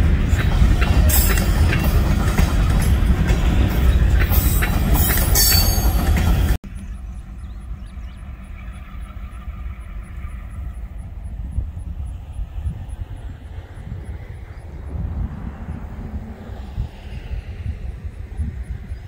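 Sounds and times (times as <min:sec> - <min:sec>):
train wheels clicking over rail joints: 0:00.0 - 0:14.4
distant diesel locomotive drone: 0:00.0 - 0:19.0
wheels squealing against rail: 0:00.3 - 0:11.4.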